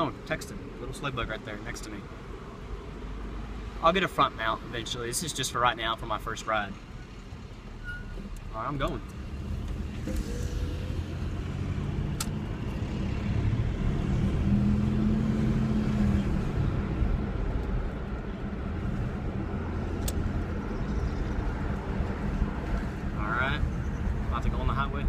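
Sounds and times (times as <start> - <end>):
wind and road noise: 0.0 - 25.0
pickup engine accelerating: 9.0 - 23.1.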